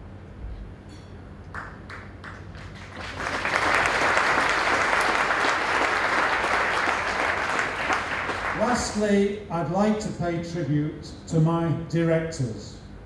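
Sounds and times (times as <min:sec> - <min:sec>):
audience applauding: 0:01.6 - 0:09.0.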